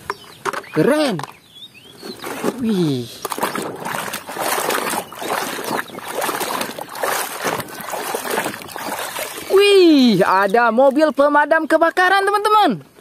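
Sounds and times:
water splashing in plastic basin: 2.2 - 11.4.

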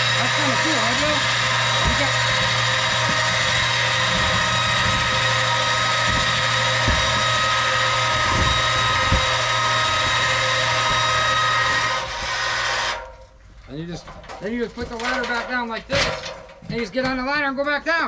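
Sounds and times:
electric lift motor whining: 0.0 - 13.4
light knocks: 1.7 - 11.8.

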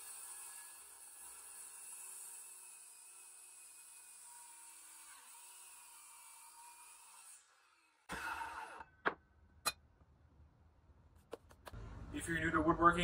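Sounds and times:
circular saw cutting board: 0.0 - 8.9.

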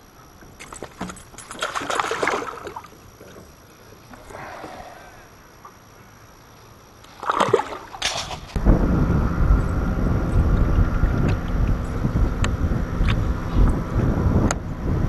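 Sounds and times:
faint high whine: 0.0 - 15.0
fish splashing into water: 0.6 - 3.0, 7.1 - 8.6
low steady rumble: 8.5 - 15.0.

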